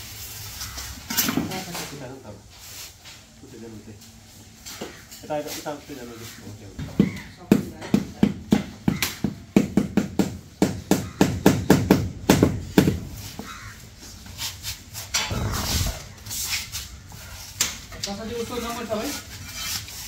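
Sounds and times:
rough scraping: 13.4 - 17.5, 18.4 - 20.0.

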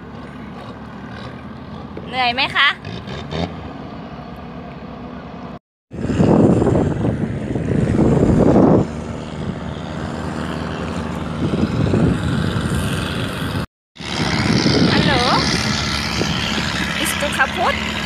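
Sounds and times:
wind buffeting microphone: 5.9 - 18.0.

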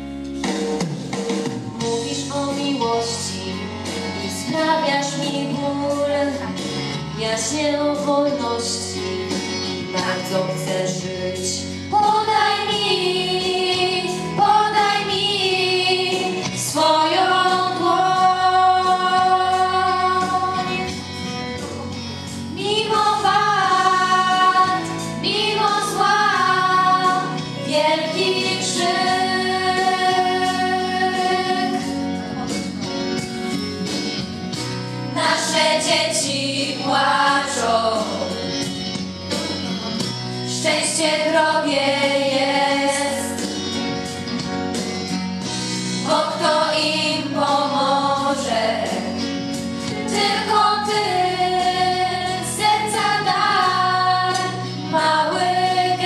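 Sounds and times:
instrumental accompaniment: 0.0 - 56.0
girl singing into microphone: 4.4 - 6.6, 10.0 - 21.0
children's choir singing: 12.0 - 21.0, 22.5 - 32.0, 35.2 - 38.3, 40.6 - 43.5, 46.0 - 49.2, 50.1 - 56.0.

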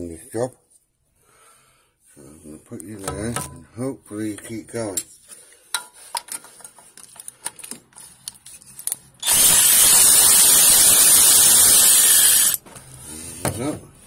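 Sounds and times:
electric ratchet motor running: 9.2 - 12.6.

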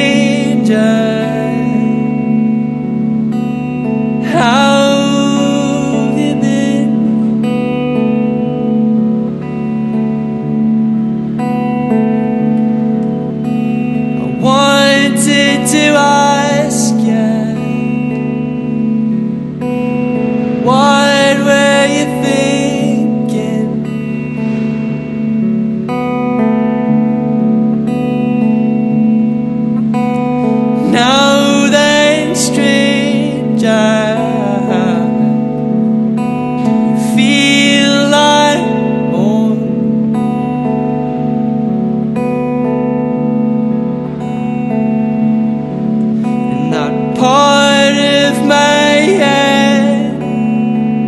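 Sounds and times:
man singing: 0.0 - 2.4, 4.2 - 7.4, 14.2 - 18.2, 20.5 - 24.2, 30.8 - 35.4, 36.6 - 40.1, 46.4 - 50.9
clean electric guitar chords: 0.0 - 51.0.

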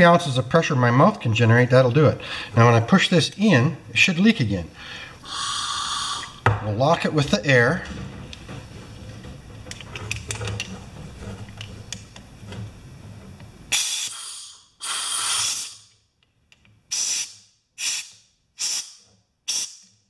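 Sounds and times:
air hissing through valve: 4.8 - 6.4, 13.7 - 16.0, 16.9 - 19.9.

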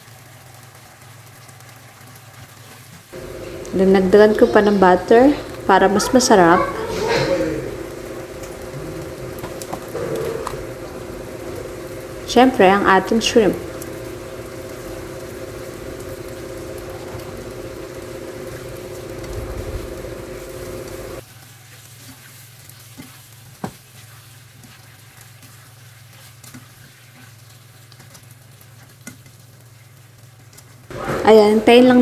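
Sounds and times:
shrimp cooking in a frying pan: 0.0 - 32.0
steady hum: 3.1 - 21.2.

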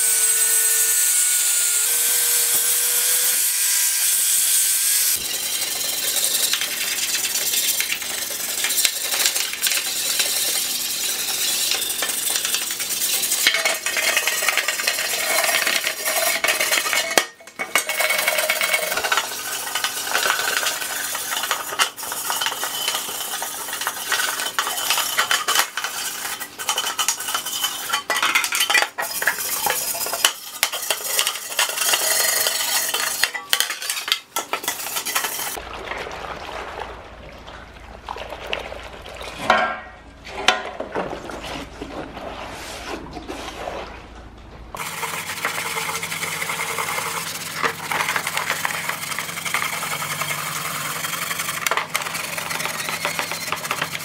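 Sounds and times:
brush scrubbing metal: 5.2 - 35.6, 44.8 - 54.0
scrubbing pan in soapy water: 5.2 - 37.1, 44.8 - 54.0.

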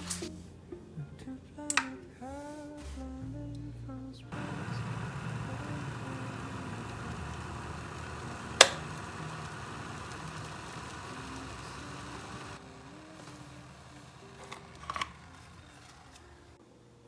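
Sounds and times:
kettle heating water hiss: 4.4 - 15.6
kettle switch click: 8.6 - 8.9.

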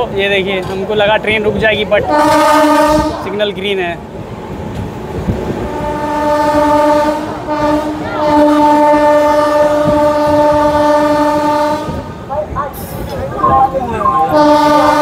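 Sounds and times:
moving train running noise: 0.0 - 15.0
train horn blasts: 2.1 - 3.3, 5.6 - 12.2, 14.0 - 15.0.

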